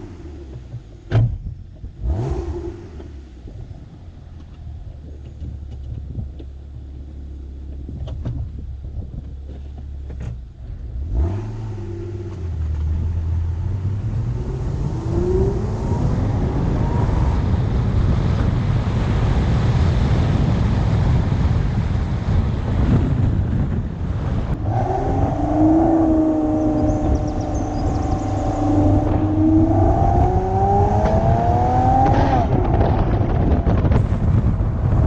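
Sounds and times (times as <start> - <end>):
car engine idling and accelerating: 0.0 - 35.0
wind and road noise: 0.0 - 35.0.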